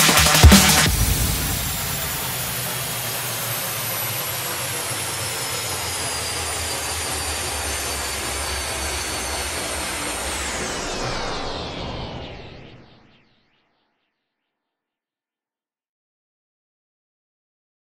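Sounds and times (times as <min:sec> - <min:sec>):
rushing noise sweep: 0:00.0 - 0:08.2.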